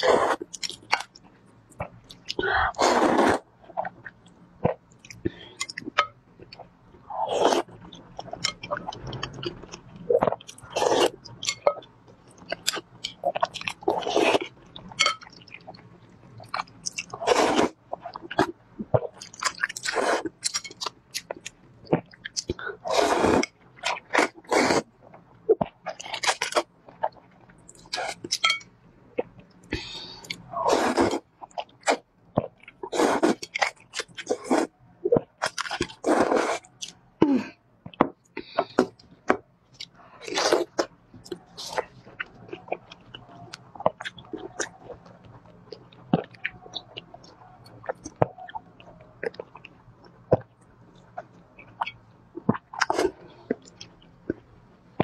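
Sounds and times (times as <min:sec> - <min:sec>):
slurping noodles: 0:02.5 - 0:03.5, 0:10.1 - 0:11.2, 0:17.2 - 0:17.8, 0:22.8 - 0:24.9, 0:30.5 - 0:31.2, 0:32.9 - 0:34.7, 0:35.8 - 0:36.7.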